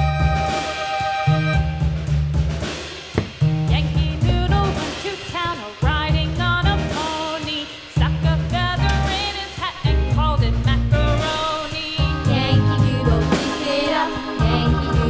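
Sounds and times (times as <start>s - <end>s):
melody over strong bass line: 0.0s - 2.6s, 12.0s - 15.0s.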